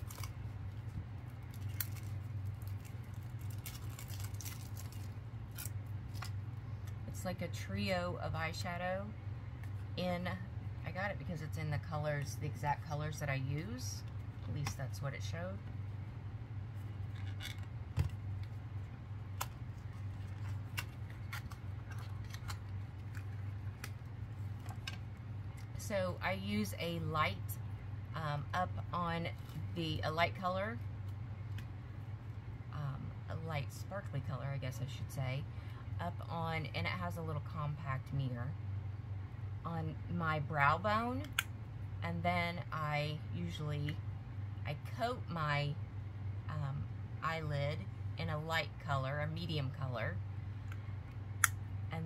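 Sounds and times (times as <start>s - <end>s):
cellophane crinkling: 0.0s - 6.4s, 19.5s - 25.0s
steady low hum: 0.0s - 52.0s.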